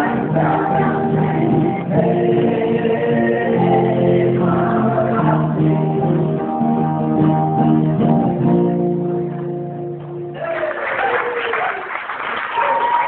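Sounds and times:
acoustic guitar strumming chords: 0:00.0 - 0:10.4
person whooping: 0:10.4 - 0:11.9, 0:12.5 - 0:13.0
audience applause: 0:10.4 - 0:13.0.

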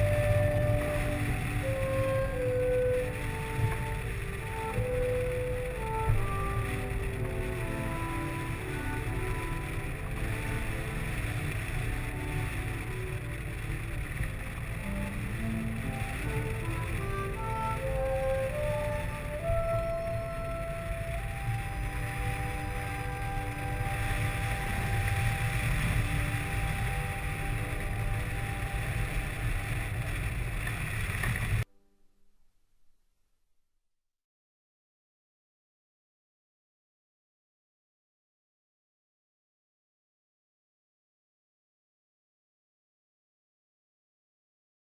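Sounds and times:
wind buffeting microphone: 0:00.0 - 0:31.6
faint music of held notes: 0:00.0 - 0:32.6.

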